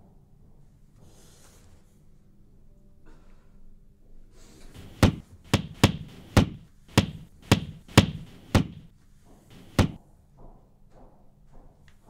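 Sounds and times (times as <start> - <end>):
fist punching a wall: 4.8 - 8.9, 9.5 - 10.0.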